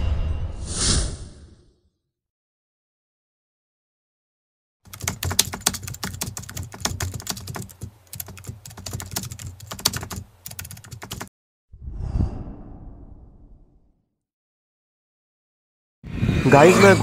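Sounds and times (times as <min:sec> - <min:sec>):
computer keyboard typing: 0:04.9 - 0:11.3.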